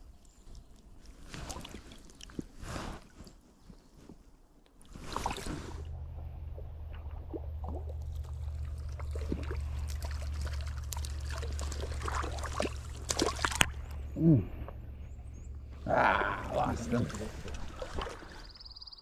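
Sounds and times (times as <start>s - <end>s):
creek water trickling: 0.0s - 3.8s, 4.7s - 18.8s
low rumble: 5.8s - 18.4s.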